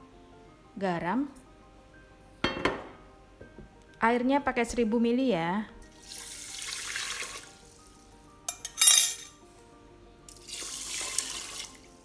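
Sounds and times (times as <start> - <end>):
soft background music: 0.0 - 12.0
water pouring onto rice: 6.0 - 7.8, 10.3 - 11.9.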